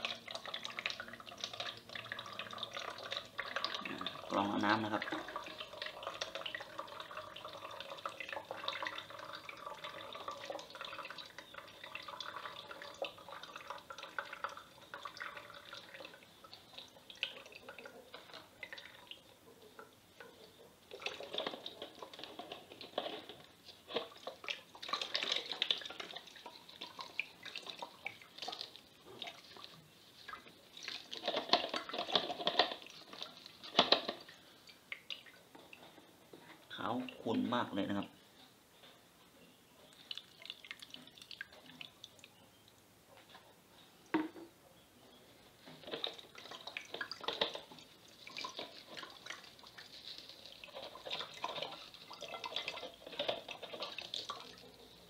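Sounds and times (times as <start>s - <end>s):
liquid trickling and dripping: 0.0s - 38.1s, 39.8s - 44.5s, 45.4s - 55.0s
wet splashes and squelches: 20.9s - 35.5s, 45.8s - 55.0s.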